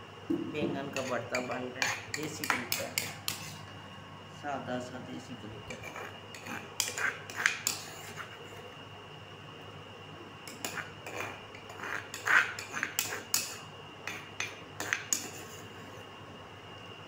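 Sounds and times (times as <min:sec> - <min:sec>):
spoon scraping stone mortar: 0:00.9 - 0:03.7, 0:05.6 - 0:08.7, 0:10.5 - 0:16.1.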